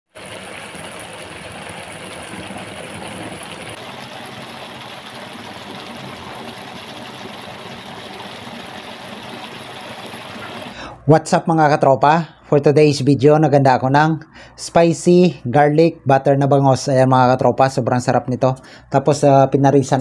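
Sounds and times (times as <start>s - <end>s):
fish sizzling in a pan: 0.1s - 10.8s.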